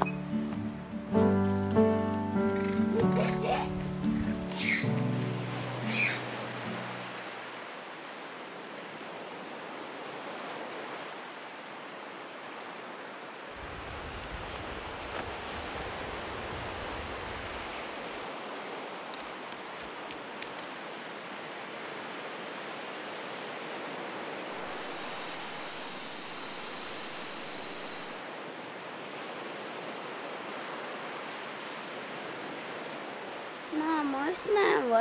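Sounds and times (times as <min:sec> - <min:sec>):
sea surf: 0:00.0 - 0:35.0
wind: 0:00.0 - 0:35.0
high hiss: 0:24.6 - 0:28.2.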